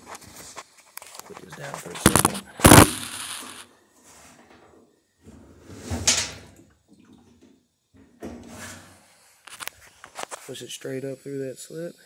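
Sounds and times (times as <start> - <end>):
parts rustling and clunking: 0.0 - 3.6.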